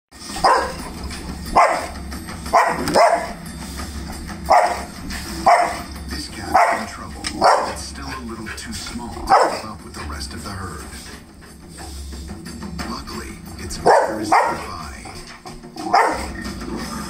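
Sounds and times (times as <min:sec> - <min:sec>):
dog barking: 0:00.3 - 0:00.9, 0:01.5 - 0:03.4, 0:04.5 - 0:05.9, 0:06.5 - 0:07.8, 0:09.3 - 0:09.7, 0:13.8 - 0:14.7, 0:15.8 - 0:16.4.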